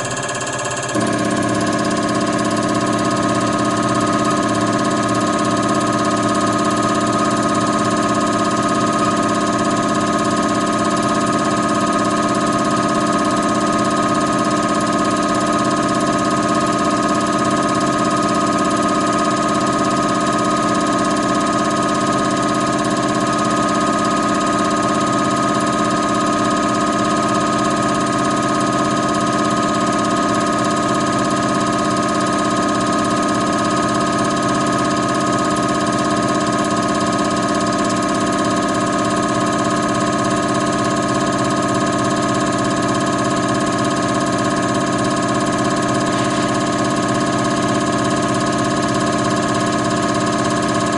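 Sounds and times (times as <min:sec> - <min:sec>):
machine hum and whine: 0:00.0 - 0:20.2.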